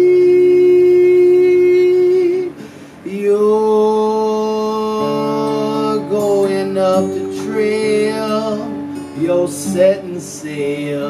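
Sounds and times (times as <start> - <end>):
acoustic guitar: 0.0 - 11.0
man singing held notes: 0.0 - 11.0.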